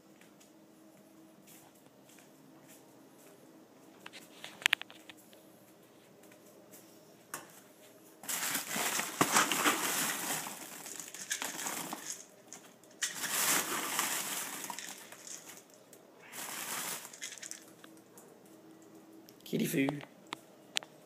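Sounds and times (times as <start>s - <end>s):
plastic bag crinkling: 8.2s - 17.9s.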